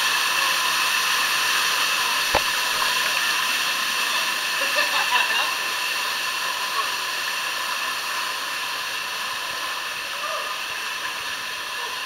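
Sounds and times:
sharp knock: 2.3s - 2.8s
rushing river water: 2.3s - 4.7s.

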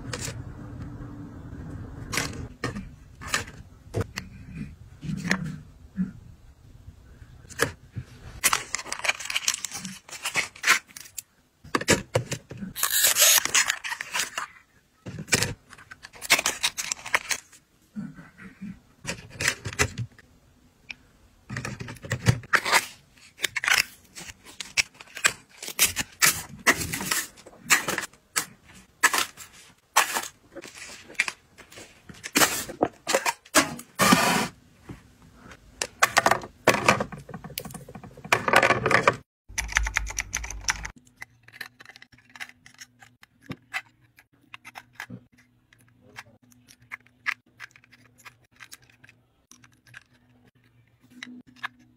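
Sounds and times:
plastic rustling: 8.4s - 11.2s.

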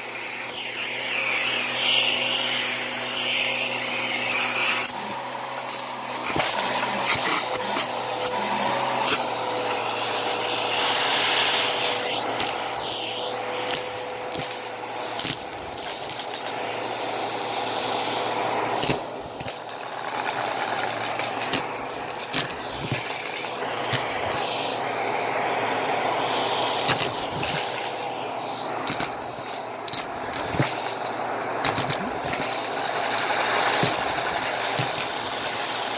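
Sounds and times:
brush scrubbing carpet: 0.0s - 35.9s
vacuum cleaner running: 0.0s - 35.9s
coins clicking: 31.6s - 35.2s.

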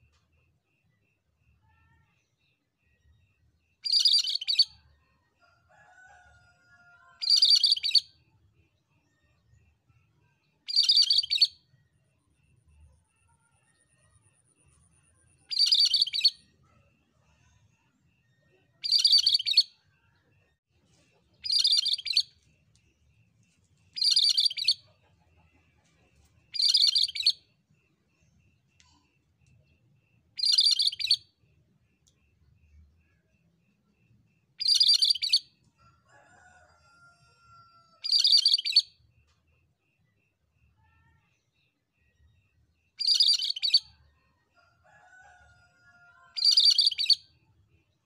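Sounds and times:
bird singing bright phrases: 42.3s - 44.0s.

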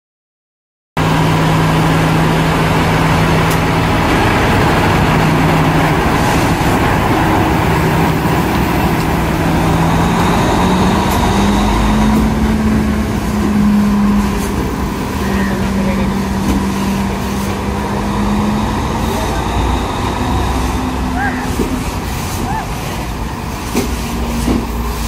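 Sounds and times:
moving train rumble: 1.0s - 25.0s
train diesel engine running: 1.0s - 25.0s.

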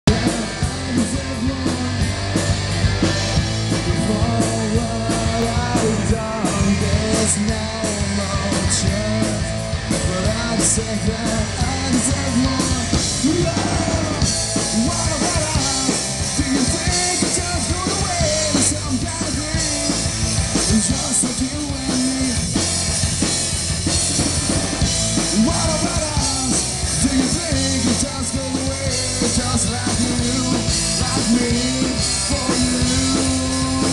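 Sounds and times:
punk rock band playing live: 0.0s - 33.9s
person singing: 0.1s - 22.6s, 25.2s - 33.9s.

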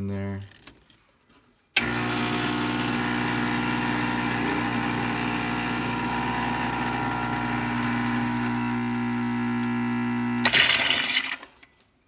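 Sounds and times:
espresso pump buzzing: 1.8s - 11.2s.

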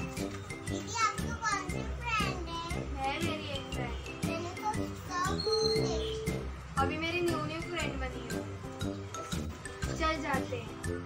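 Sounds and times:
background music: 0.0s - 11.0s
child speaking: 0.7s - 3.4s, 4.2s - 6.4s.

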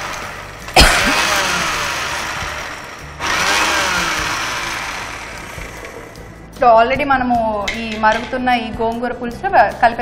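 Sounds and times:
mixer grinder grinding spices: 0.0s - 6.5s.

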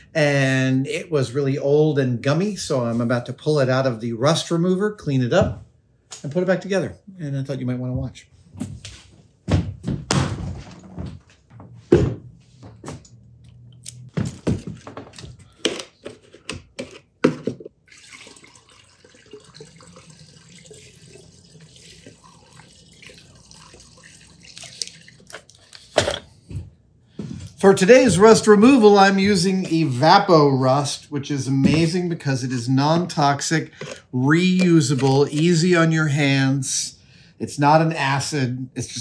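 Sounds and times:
liquid trickling through funnel: 17.8s - 25.8s.

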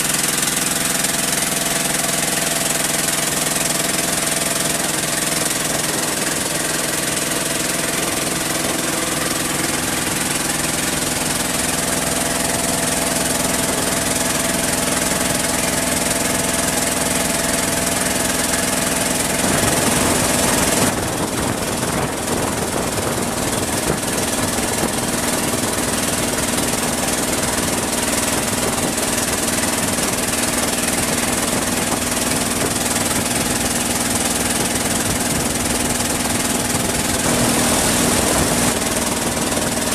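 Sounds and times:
boat engine running: 0.0s - 39.9s.

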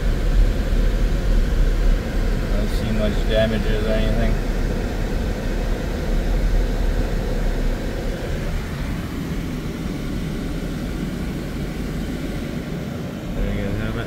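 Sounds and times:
low traffic rumble: 0.0s - 14.0s.

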